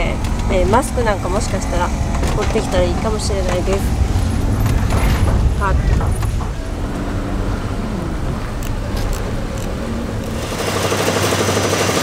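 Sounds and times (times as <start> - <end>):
car driving on bumpy road: 0.0 - 11.2.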